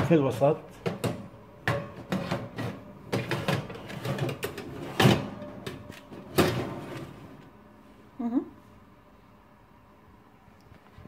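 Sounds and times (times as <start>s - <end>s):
metal tray sliding into oven: 2.1s - 7.4s.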